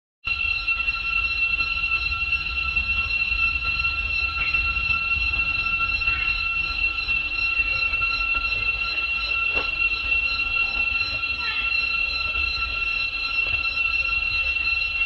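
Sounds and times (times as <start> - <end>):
insects droning: 0.3 - 15.0
low rumble: 1.0 - 11.2.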